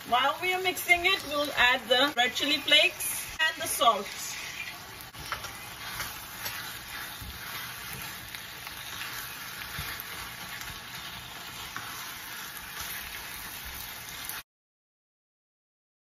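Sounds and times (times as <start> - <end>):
meat sizzling in a pan: 0.0 - 14.4
spatula scraping a pan: 2.3 - 14.4.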